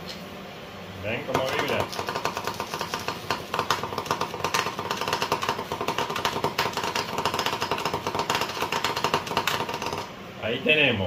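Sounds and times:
vibration motor buzzing and rattling: 0:01.3 - 0:10.1.

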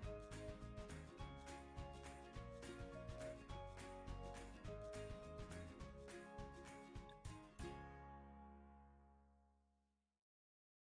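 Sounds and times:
background music held chord: 0:00.0 - 0:09.6.

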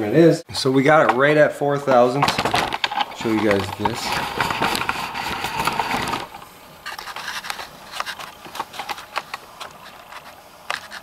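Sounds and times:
scraping rustle: 0:02.2 - 0:11.0.

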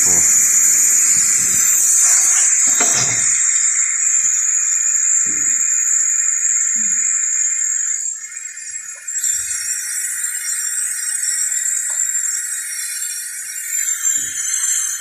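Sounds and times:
gas hissing from vent: 0:00.0 - 0:07.6.

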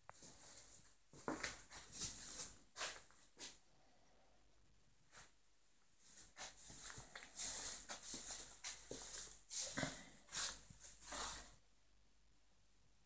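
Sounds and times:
footsteps: 0:00.1 - 0:03.6, 0:06.0 - 0:11.6
rustling: 0:06.0 - 0:11.6.

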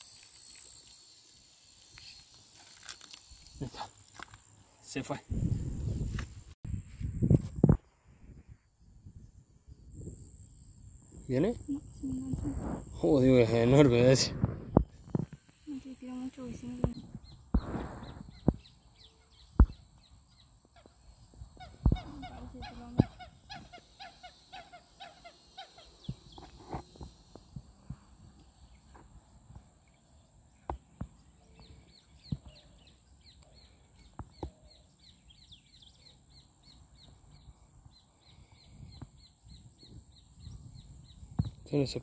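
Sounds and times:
birds calling: 0:14.8 - 0:26.6.

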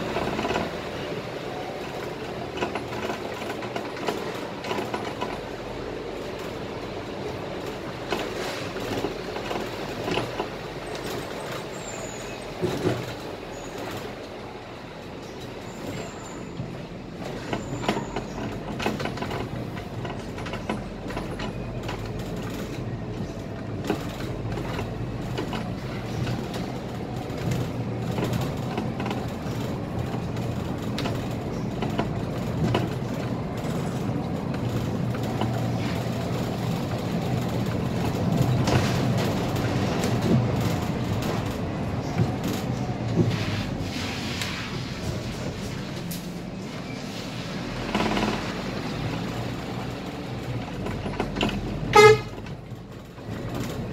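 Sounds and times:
bus engine drone: 0:00.0 - 0:53.9.

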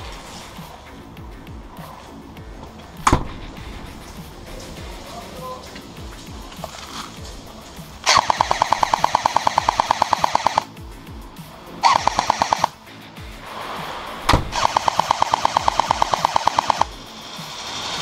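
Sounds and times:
airsoft rifle automatic fire: 0:08.0 - 0:10.7, 0:11.8 - 0:12.8, 0:14.5 - 0:17.0.

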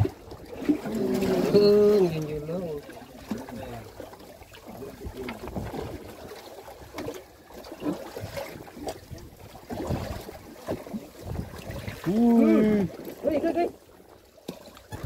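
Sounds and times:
water sloshing against boat hull: 0:00.0 - 0:15.0.

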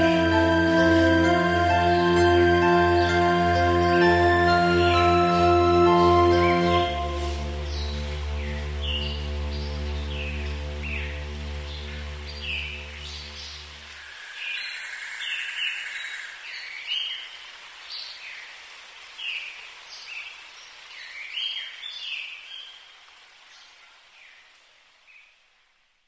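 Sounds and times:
music track: 0:00.0 - 0:13.4
faint steady hiss: 0:00.0 - 0:26.0.

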